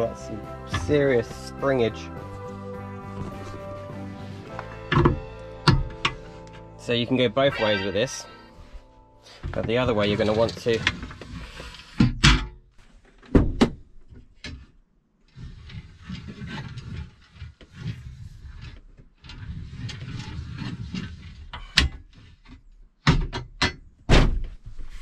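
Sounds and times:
scraping and shuffling: 1.0 - 11.9.

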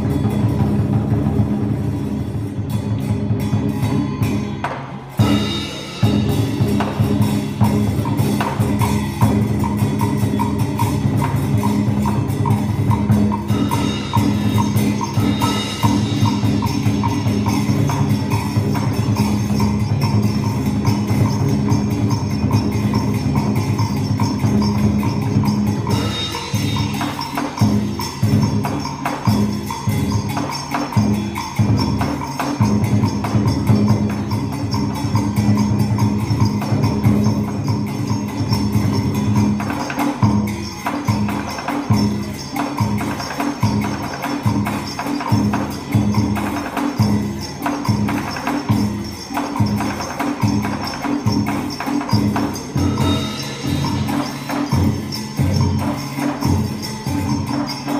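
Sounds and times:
ensemble music with percussion beat: 0.0 - 57.9.

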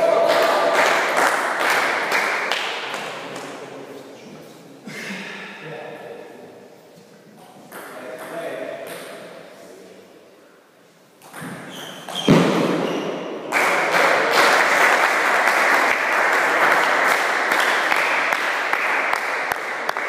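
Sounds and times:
spectators applauding: 0.0 - 3.5, 13.5 - 20.0.

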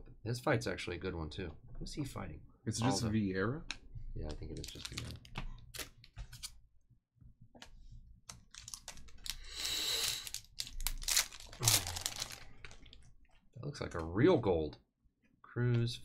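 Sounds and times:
foil pack crinkling: 4.5 - 6.5, 8.3 - 13.1
foil wrapper tearing: 8.5 - 13.0.

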